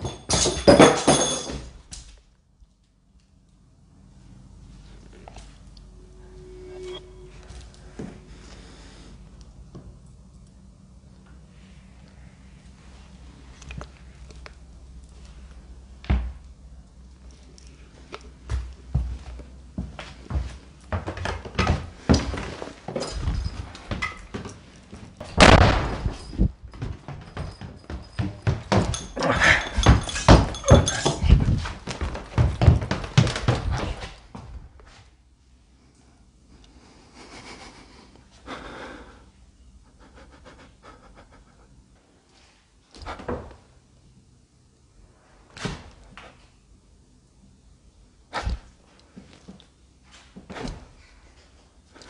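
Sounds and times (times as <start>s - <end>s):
footfalls on wooden stairs: 0.0s - 1.7s, 25.2s - 34.2s
footsteps on wooden stairs: 18.5s - 25.4s, 26.0s - 34.5s
person breathing hard: 36.7s - 39.4s.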